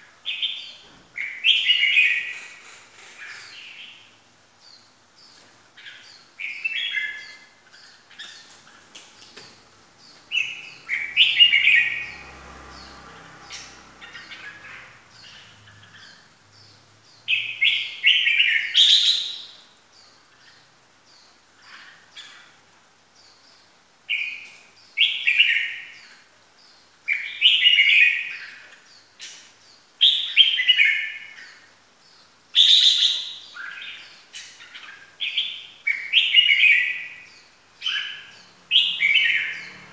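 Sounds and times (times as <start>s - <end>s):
bird warbling song: 0.0s - 39.9s
high bird chirps: 10.0s - 19.6s.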